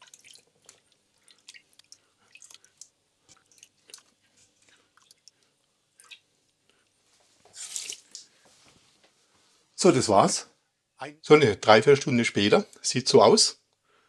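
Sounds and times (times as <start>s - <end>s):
wet splashes and squelches: 0.0s - 6.3s, 7.5s - 8.3s.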